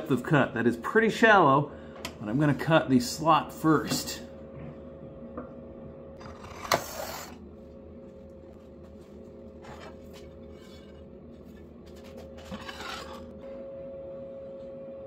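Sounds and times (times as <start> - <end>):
faint steady hum: 0.0 - 15.0
metal sheet scraping on metal: 12.4 - 13.3.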